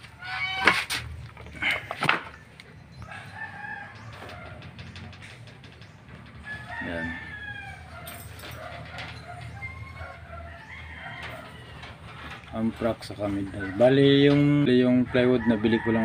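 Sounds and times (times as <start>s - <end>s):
chickens clucking: 0.0s - 16.0s
rooster crowing: 3.0s - 5.0s, 6.4s - 12.1s, 15.1s - 16.0s.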